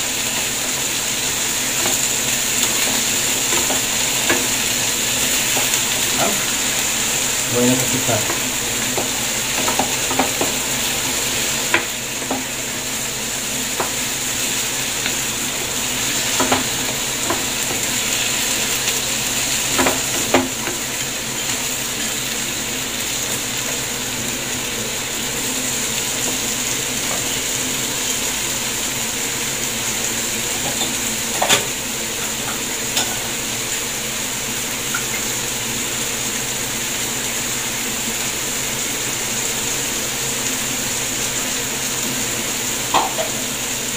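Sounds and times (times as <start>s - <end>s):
vegetables sizzling in a frying pan: 0.0s - 43.9s
spatula tapping and scraping pan: 1.8s - 4.6s, 5.5s - 6.5s, 8.2s - 10.6s, 11.6s - 12.6s, 13.8s - 14.0s, 15.0s - 18.0s, 19.7s - 20.8s.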